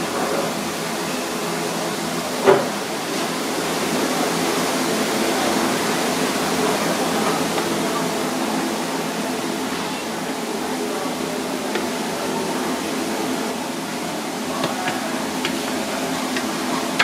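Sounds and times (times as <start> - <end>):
rushing kitchen background noise: 0.0 - 17.0.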